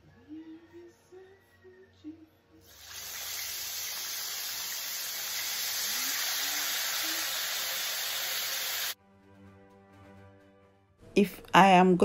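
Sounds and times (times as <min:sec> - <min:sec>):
faint music: 0:00.0 - 0:08.1, 0:11.0 - 0:12.0
pot boiling hard: 0:02.7 - 0:09.0.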